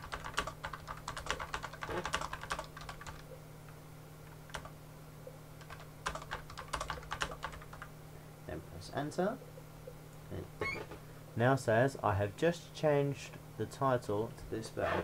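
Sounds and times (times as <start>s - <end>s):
typing on computer keyboard: 0.0s - 3.2s, 4.5s - 4.7s, 5.6s - 7.9s
faint low hum: 0.0s - 15.0s.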